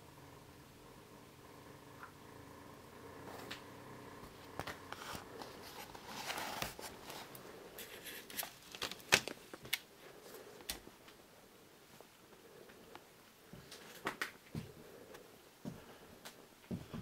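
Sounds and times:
rustling and scuffing: 4.3s - 10.5s.

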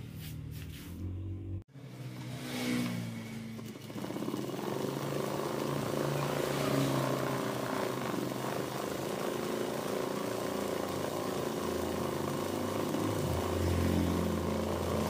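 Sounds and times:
sewing machine stitching: 3.4s - 15.0s.

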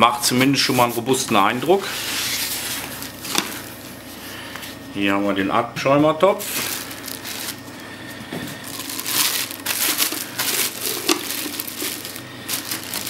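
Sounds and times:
plastic bags and cardboard crinkling: 6.4s - 13.0s.

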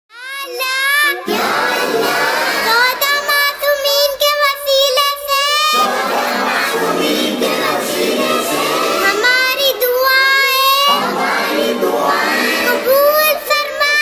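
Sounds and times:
girl singing: 0.1s - 1.4s, 2.6s - 5.9s, 8.2s - 11.4s, 12.1s - 14.0s.

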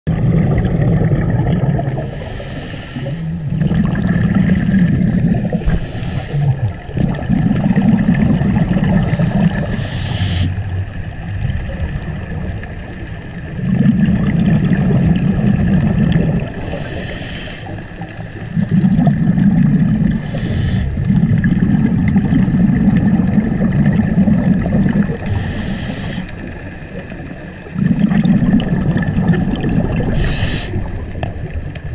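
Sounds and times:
rumble of exhaled bubbles: 0.1s - 31.9s
regulator hissing inhalations: 2.1s - 3.3s, 5.6s - 6.6s, 9.1s - 10.6s, 16.6s - 17.8s, 20.2s - 21.0s, 25.3s - 26.4s, 30.1s - 30.8s.

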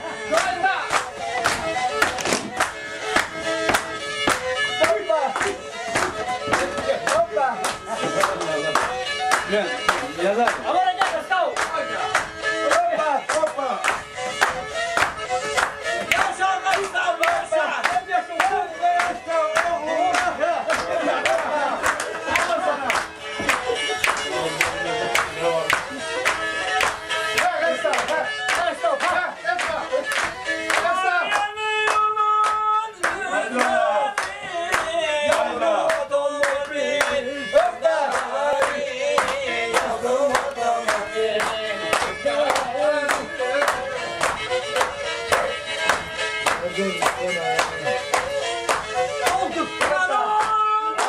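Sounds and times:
folk dance music: 0.0s - 51.0s
hand claps: 0.2s - 51.0s
men shouting: 16.2s - 22.9s, 33.1s - 34.2s.

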